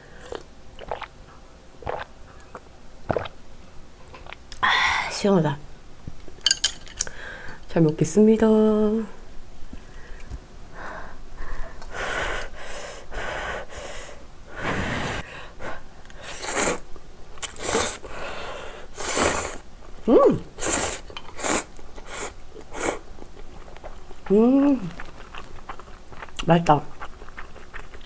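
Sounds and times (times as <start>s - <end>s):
person slurping noodles: 0.2s - 1.1s, 1.8s - 2.1s, 3.1s - 3.3s, 14.6s - 15.3s, 16.2s - 16.8s, 17.4s - 18.1s, 18.9s - 19.6s, 20.6s - 23.0s.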